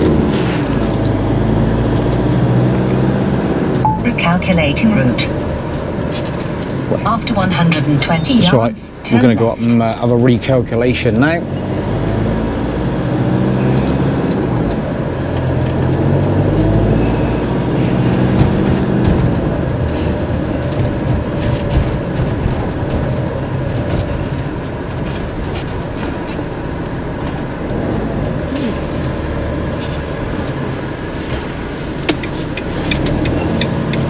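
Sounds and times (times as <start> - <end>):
diesel engine hum: 0.0 - 34.0
road noise: 0.0 - 34.0
light rattles and clicks: 18.0 - 27.6.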